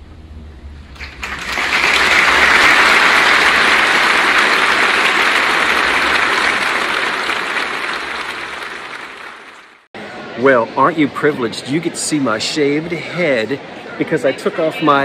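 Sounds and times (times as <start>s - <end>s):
audience applauding: 1.0s - 9.9s.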